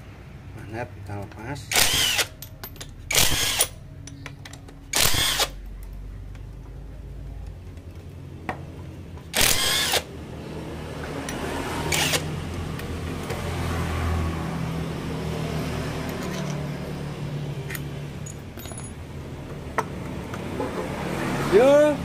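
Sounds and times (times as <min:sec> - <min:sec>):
pneumatic impact wrench bursts: 0:01.7 - 0:02.4, 0:03.1 - 0:03.8, 0:04.9 - 0:05.6, 0:09.3 - 0:10.1, 0:11.9 - 0:12.3.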